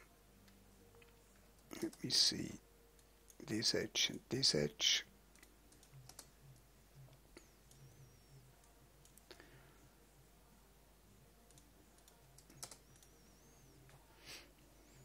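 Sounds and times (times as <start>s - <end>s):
computer mouse clicks: 5.4s - 6.3s, 9.0s - 9.4s, 11.5s - 13.3s.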